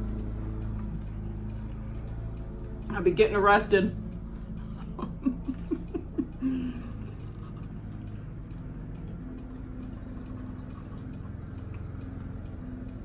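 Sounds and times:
steady low hum: 0.0s - 13.0s
wall clock ticking: 0.0s - 13.0s
woman laughing: 4.7s - 6.9s.

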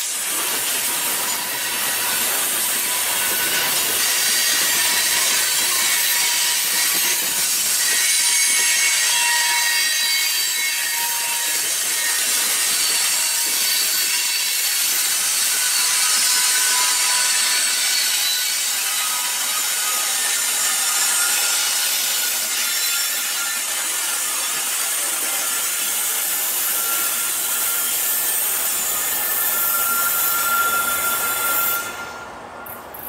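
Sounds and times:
train wheels grinding on rails: 0.0s - 33.0s
high wheel squeals: 26.1s - 33.0s.

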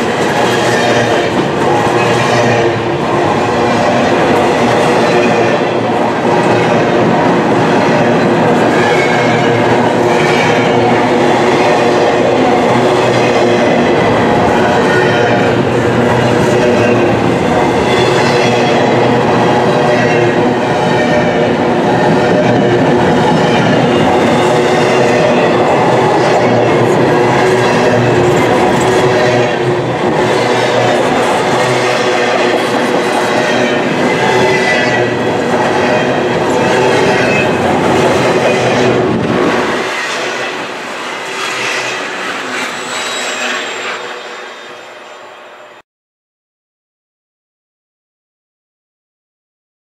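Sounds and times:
train wheels squealing: 41.1s - 45.8s.

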